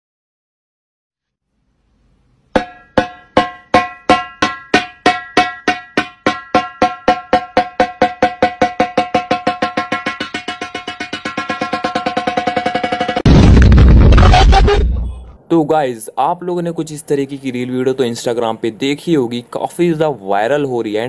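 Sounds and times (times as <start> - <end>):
pitched percussion note struck: 2.6 - 13.3.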